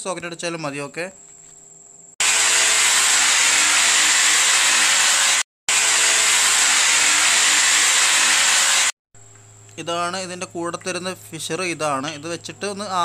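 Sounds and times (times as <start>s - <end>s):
hammer drill drilling into tile: 2.2s - 9.0s.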